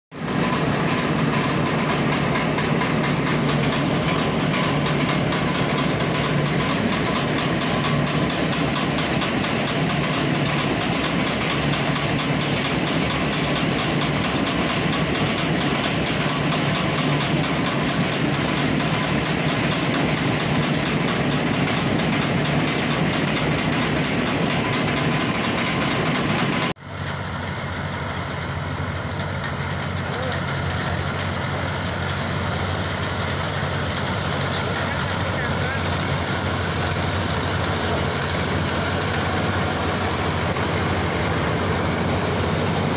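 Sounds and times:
combine harvester running: 0.1s - 42.9s.

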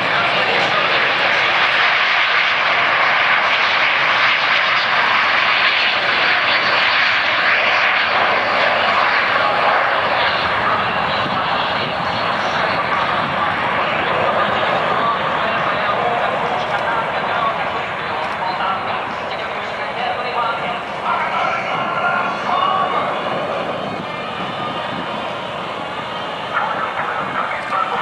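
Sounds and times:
jet engines taking off: 0.0s - 28.0s.

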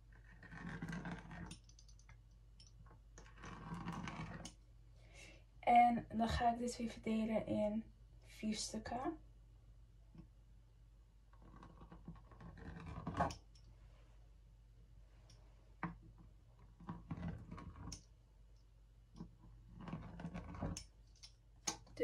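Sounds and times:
pizza cutter scraping dough on stone: 0.2s - 1.6s, 11.4s - 13.4s, 19.7s - 20.8s.

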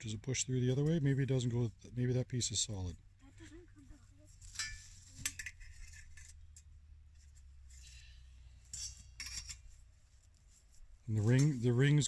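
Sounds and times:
metal parts scraping and clinking: 4.4s - 6.7s, 8.7s - 9.7s.

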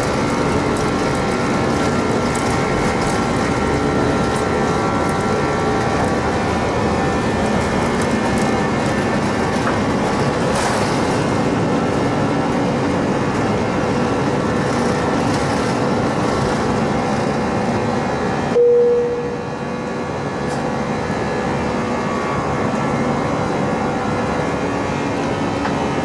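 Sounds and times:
jet engines at takeoff thrust: 0.0s - 26.0s.

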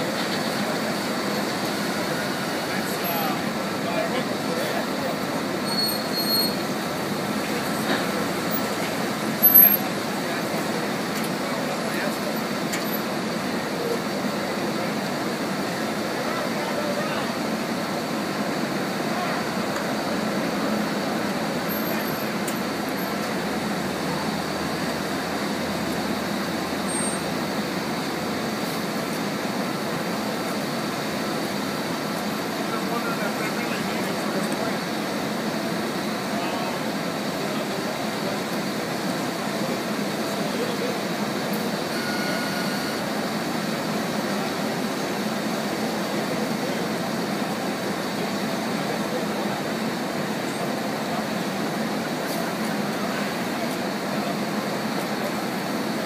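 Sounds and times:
faint high whine: 41.5s - 43.2s.

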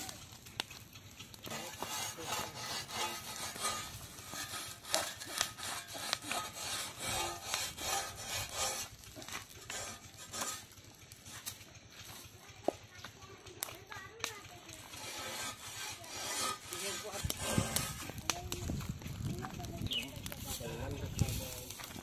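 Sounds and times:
metal hoe scraping hide: 1.4s - 12.3s, 14.7s - 19.0s.

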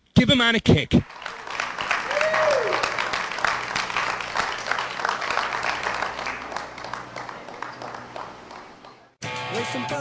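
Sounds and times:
audience applauding: 1.0s - 9.2s.

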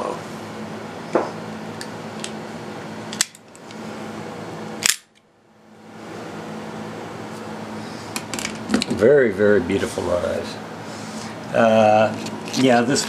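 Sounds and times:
switchblade snapping open: 4.8s - 5.2s.

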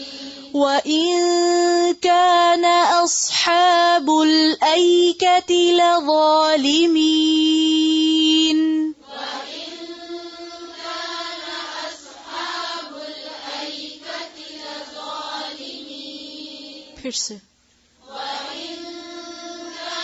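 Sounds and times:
group of voices reciting in chorus: 0.0s - 0.6s, 9.0s - 17.0s, 18.0s - 20.0s
woman chanting: 0.0s - 12.3s, 12.9s - 17.4s.

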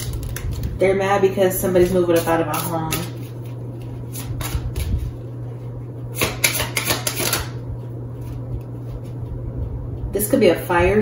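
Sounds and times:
cards being shuffled: 0.0s - 0.8s
steady low hum: 0.0s - 11.0s.

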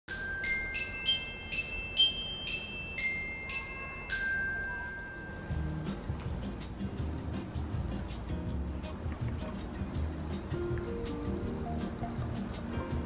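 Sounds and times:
bright bell tone jingle: 0.1s - 6.3s.

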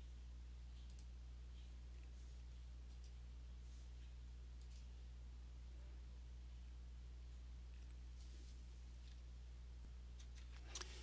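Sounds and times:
low electrical hum: 0.0s - 11.0s
computer mouse clicks: 0.8s - 1.7s, 2.9s - 3.2s, 4.6s - 4.9s.

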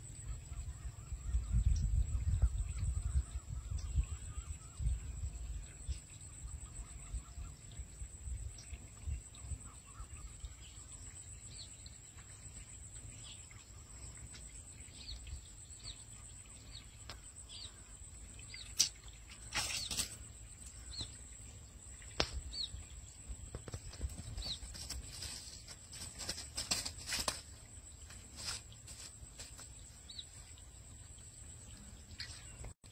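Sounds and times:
small birds chirping: 0.0s - 32.9s
rustling in weeds: 23.6s - 29.8s.

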